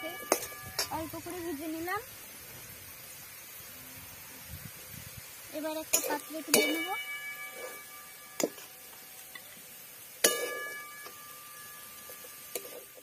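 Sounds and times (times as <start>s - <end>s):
metal spatula clanking on a pan: 0.0s - 1.1s, 5.9s - 8.7s, 10.2s - 13.0s.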